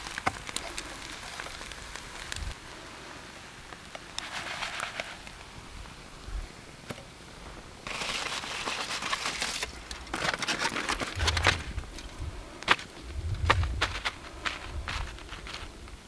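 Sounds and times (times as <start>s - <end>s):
crinkling and rustling: 7.8s - 16.0s.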